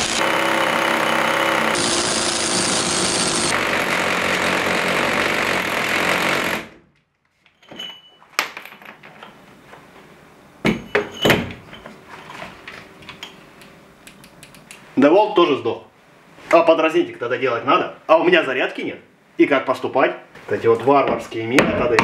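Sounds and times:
rotary hammer drilling into brick: 0.0s - 6.8s.

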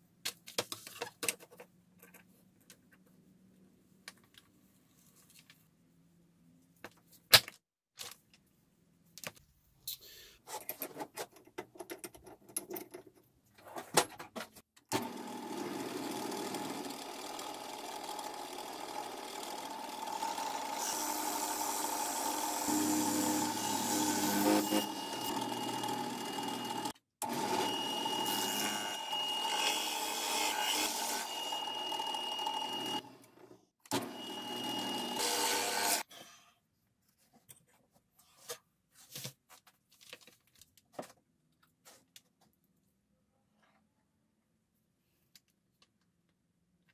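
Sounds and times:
drill press boring into wood: 14.9s - 30.2s, 30.8s - 33.0s, 33.9s - 36.0s.

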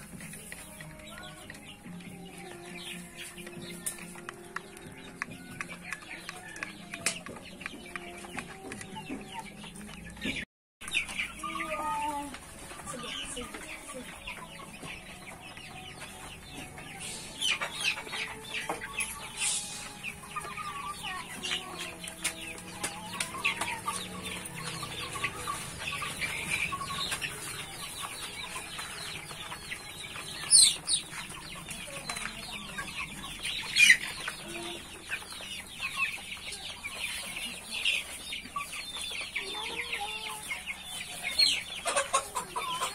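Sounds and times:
chickens clucking: 0.0s - 42.9s
beaks pecking at feed: 3.4s - 10.1s.

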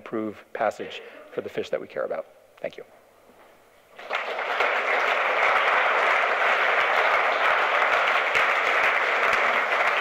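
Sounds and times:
audience applauding: 4.0s - 10.0s.

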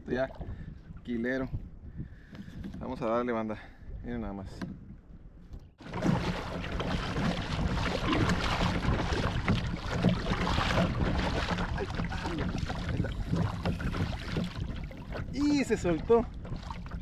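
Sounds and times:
wind buffeting microphone: 0.0s - 17.0s
paddle splashing in water: 5.8s - 17.0s.

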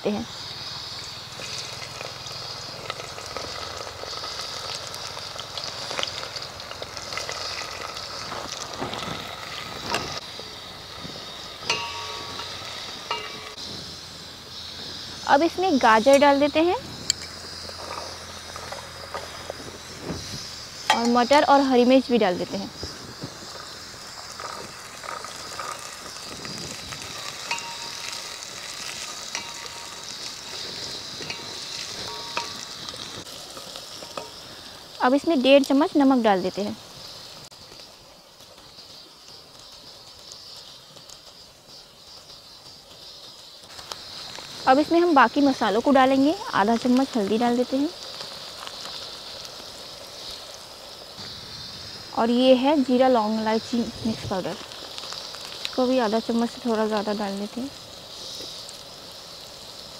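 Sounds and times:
vegetables sizzling in hot oil: 0.0s - 59.9s
metal pot ringing: 11.6s - 13.6s, 20.9s - 21.3s, 27.4s - 32.9s
spatula knocking metal pot: 11.6s - 13.6s, 20.9s - 21.2s.

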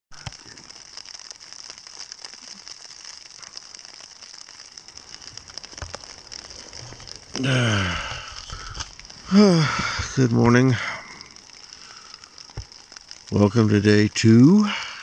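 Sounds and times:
wet snow pattering on tent fabric: 0.1s - 15.0s
man's voice: 9.3s - 11.0s, 13.3s - 14.9s.

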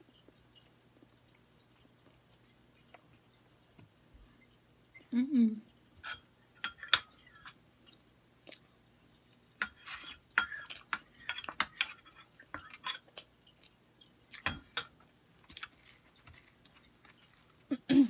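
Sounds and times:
chewing and mouth sounds: 0.0s - 3.8s, 7.9s - 9.4s
utensil clinking on ceramic bowl: 6.0s - 7.6s, 9.6s - 13.1s, 14.4s - 15.0s.

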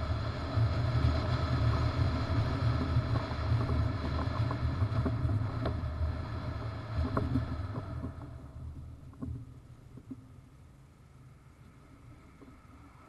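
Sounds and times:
wind on microphone: 0.0s - 9.4s
road noise from towed trailer: 0.0s - 13.0s.

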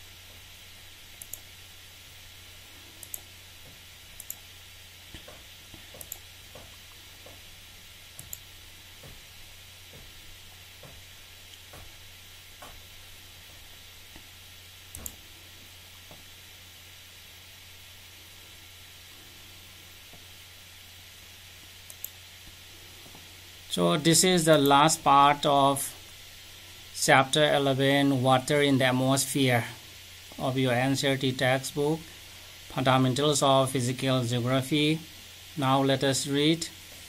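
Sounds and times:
low hiss and hum: 0.0s - 37.0s
computer mouse clicking: 1.2s - 1.5s, 3.0s - 4.5s, 5.2s - 7.4s, 8.1s - 9.2s, 14.9s - 15.2s, 21.8s - 22.2s.

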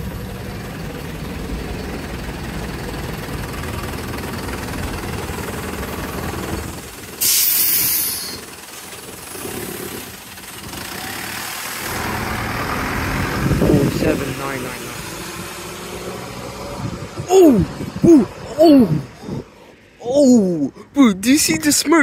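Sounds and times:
bus diesel engine idling: 0.0s - 15.5s
loud hiss of compressed air: 7.2s - 8.5s.

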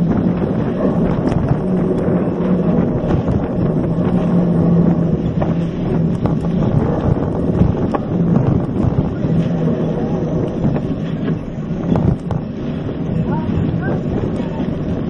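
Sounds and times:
tyres rumbling on dirt: 0.0s - 15.0s
wind buffeting microphone: 0.0s - 15.0s.

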